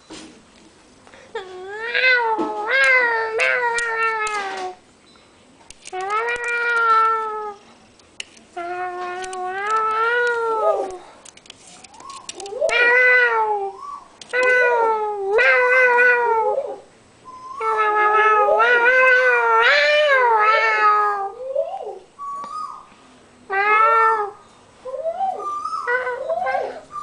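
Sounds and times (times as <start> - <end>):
person imitating cat meows: 1.4 - 4.8.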